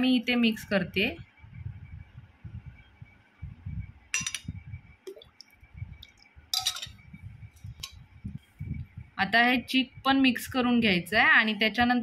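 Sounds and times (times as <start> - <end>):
steel ladle clinking on pot: 6.5 - 7.0.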